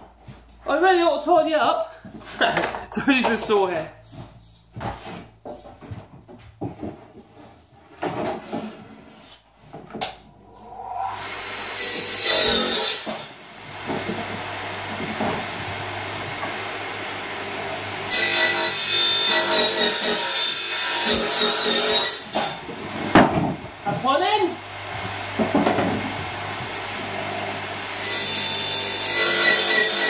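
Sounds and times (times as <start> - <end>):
saw cutting wood: 10.6 - 23.2, 25.0 - 30.0.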